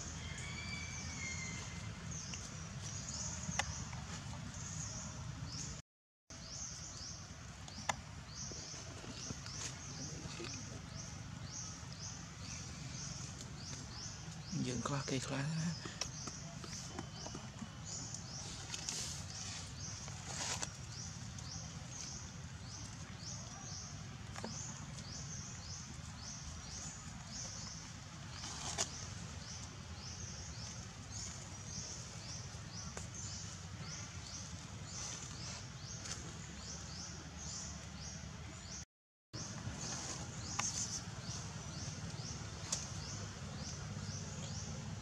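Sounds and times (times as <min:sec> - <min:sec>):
low steady rumble: 0:39.4 - 0:45.0.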